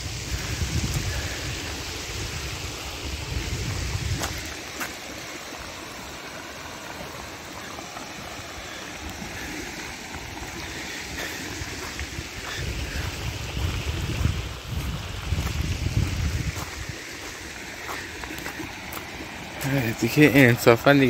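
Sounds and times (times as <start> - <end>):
wind buffeting microphone: 0.0 - 7.0, 8.0 - 20.7
flood water rushing: 0.0 - 21.0.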